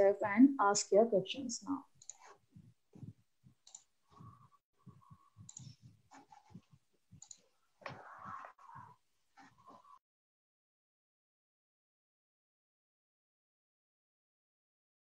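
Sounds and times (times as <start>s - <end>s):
faint irregular clicks: 2.0s - 10.0s.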